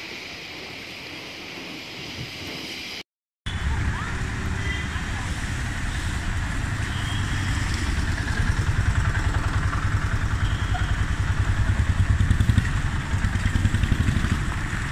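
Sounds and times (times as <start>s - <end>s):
steady hiss: 0.0s - 3.0s
vehicle engines rumbling: 3.5s - 14.9s.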